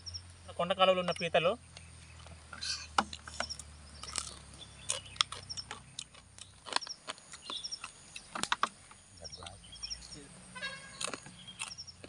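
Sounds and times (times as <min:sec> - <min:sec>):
small birds chirping: 0:00.0 - 0:12.0
crab shells cracking: 0:04.0 - 0:08.7.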